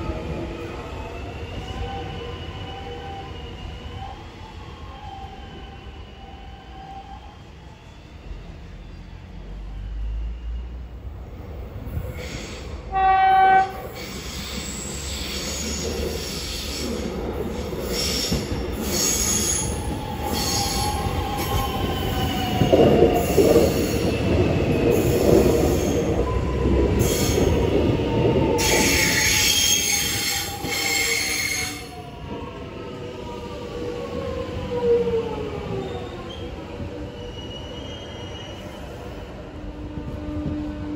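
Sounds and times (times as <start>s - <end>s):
train wheels squealing: 0.6s - 12.8s, 13.8s - 24.2s, 24.8s - 32.2s, 34.8s - 39.4s
train horn blast: 12.9s - 13.9s.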